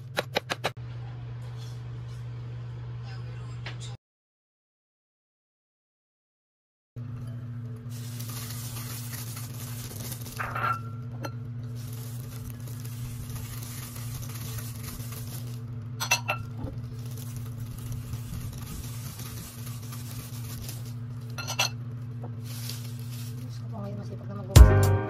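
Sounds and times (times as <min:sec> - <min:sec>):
steady low hum: 0:07.0 - 0:24.7
bowls clinking: 0:16.0 - 0:16.6, 0:21.3 - 0:21.8.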